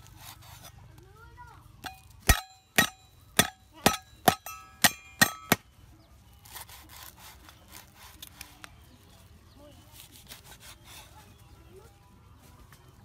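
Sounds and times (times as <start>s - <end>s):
cleaver chopping on wooden board: 1.8s - 5.6s
blade ringing: 1.8s - 5.7s.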